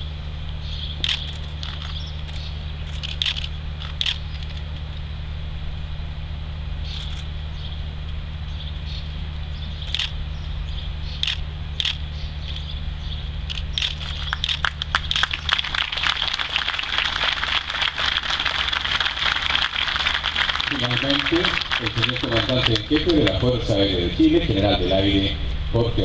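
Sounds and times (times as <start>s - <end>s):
steady low hum: 0.0s - 26.0s
audience clapping: 14.0s - 23.9s.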